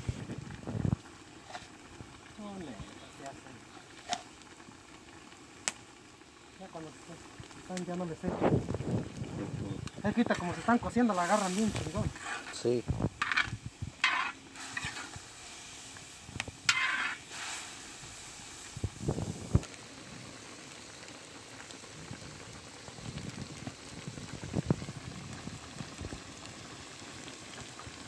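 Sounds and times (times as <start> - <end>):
tripe bubbling and sizzling: 0.0 - 28.0
spatula scraping and knocking: 12.1 - 12.6, 13.2 - 15.1, 16.7 - 17.2.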